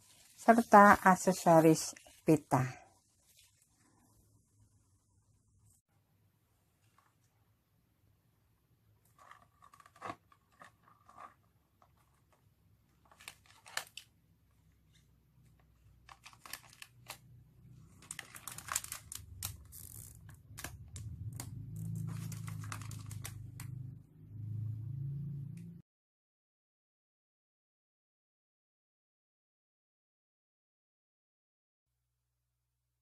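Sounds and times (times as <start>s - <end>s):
plastic snack wrappers crinkling: 13.0s - 14.1s, 15.9s - 21.0s, 21.7s - 23.7s.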